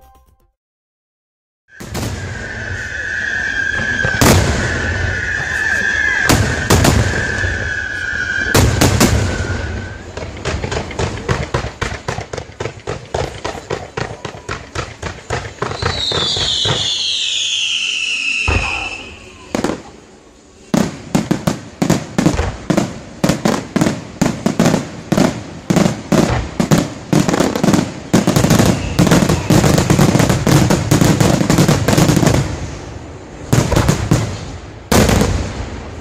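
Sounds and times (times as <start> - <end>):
whistle falling in pitch: 1.7 - 8.6, 15.8 - 19.6
firework high whistle: 1.7 - 10.3, 15.6 - 21.2, 27.3 - 32.9
firework shells booming: 1.7 - 17.7, 20.8 - 36.0
firework sharp cracks: 1.7 - 20.0, 20.7 - 36.0.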